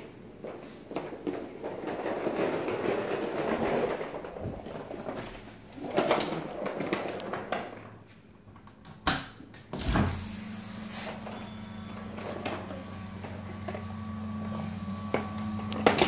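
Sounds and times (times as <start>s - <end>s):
wheeled backpack rolling: 0.0s - 8.1s.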